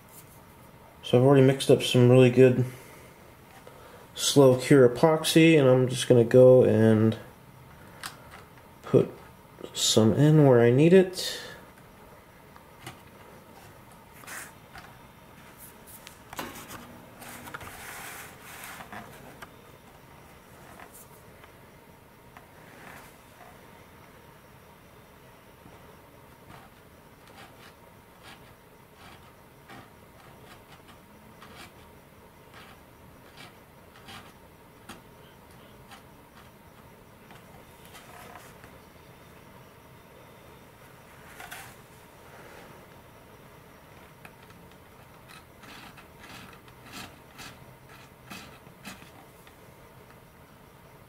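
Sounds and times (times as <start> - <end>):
stick ticking and scraping: 26.5 - 31.9, 32.5 - 36.6, 44.2 - 49.6.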